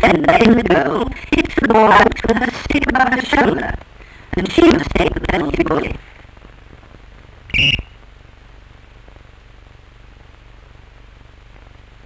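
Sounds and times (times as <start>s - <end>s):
low hum and hiss: 0.0s - 12.0s
referee's whistle blast: 7.5s - 8.0s.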